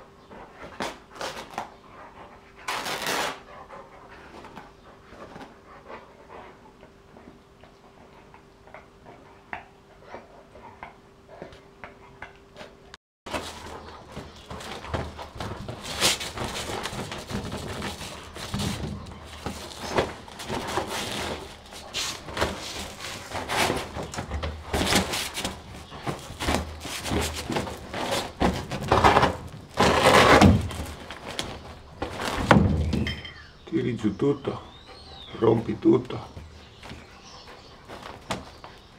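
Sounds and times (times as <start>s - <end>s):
dog scraping and rustling fabric: 2.6s - 3.5s, 13.3s - 32.5s
knocks and thumps: 13.3s - 33.4s.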